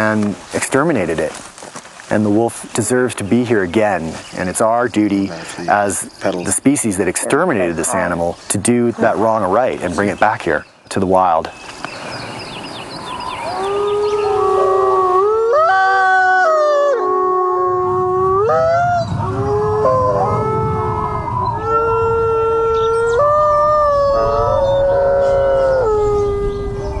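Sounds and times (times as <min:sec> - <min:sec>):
wolves howling: 0:13.0 - 0:27.0.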